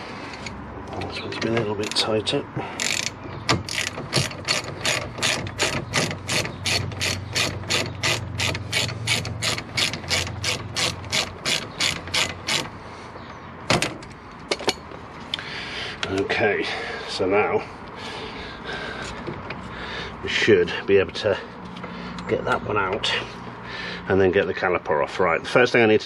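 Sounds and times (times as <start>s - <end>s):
ratchet wrench clicking: 2.8s - 12.7s.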